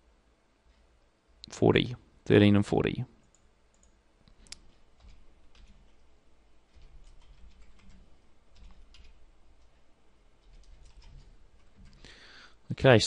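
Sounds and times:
faint keyboard typing: 0.6s - 1.5s, 3.2s - 12.5s.

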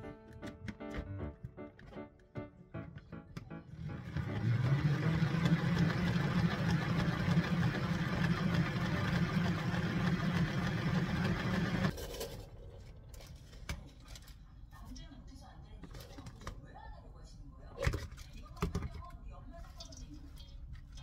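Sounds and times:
salad spinner whirring: 3.7s - 12.0s.

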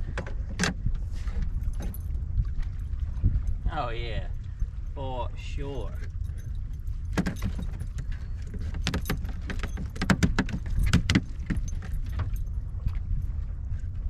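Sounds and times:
steady low rumble: 0.0s - 8.6s
clicks and taps handling fish: 7.1s - 12.4s.

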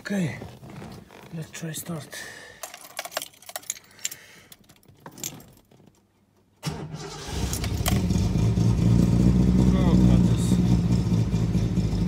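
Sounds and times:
car keys jangling in ignition: 2.6s - 6.1s, 7.0s - 8.1s
car engine starting and running: 6.6s - 12.0s.

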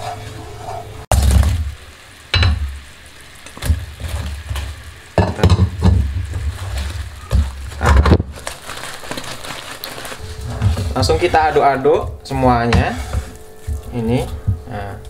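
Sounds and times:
metal spatula scraping wok: 0.0s - 1.1s, 10.2s - 14.4s
steady sizzle in wok: 0.0s - 15.0s.

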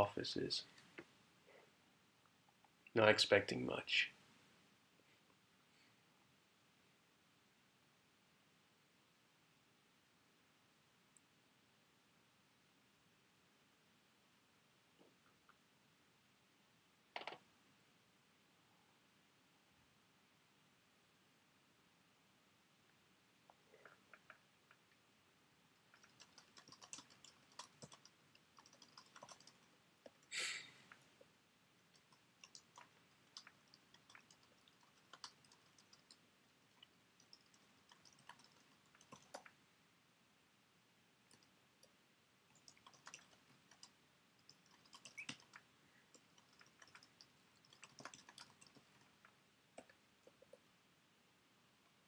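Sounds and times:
laptop keyboard typing: 17.2s - 17.4s, 25.9s - 30.2s, 31.9s - 39.5s, 42.5s - 50.6s.

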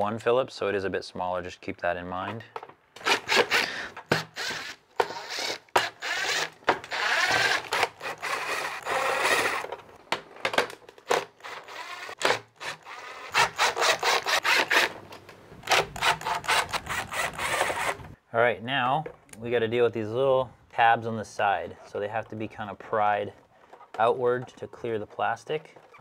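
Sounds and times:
screws and metal case rattling: 2.5s - 18.2s, 21.7s - 26.0s
cordless drill whirring: 3.0s - 9.7s, 11.1s - 14.9s, 15.6s - 18.2s.

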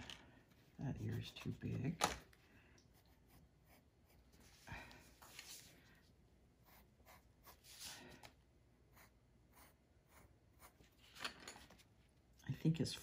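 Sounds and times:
pencil scratching on paper: 2.9s - 4.5s, 6.6s - 8.0s, 8.9s - 11.0s.

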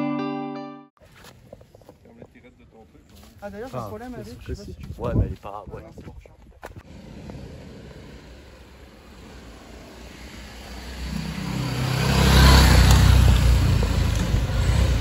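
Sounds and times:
motorcycle engine passing by: 6.8s - 15.0s.

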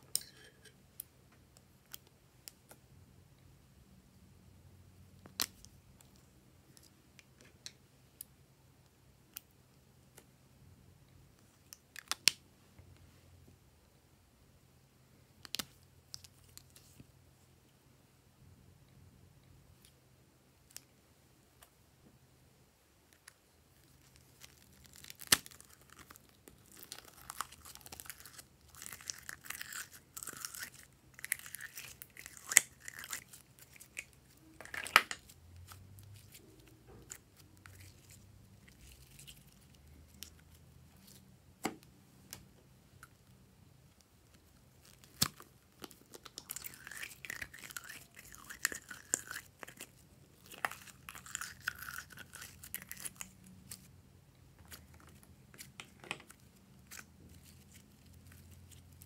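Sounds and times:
slime squishing and crackling: 23.8s - 41.2s, 44.3s - 53.9s.

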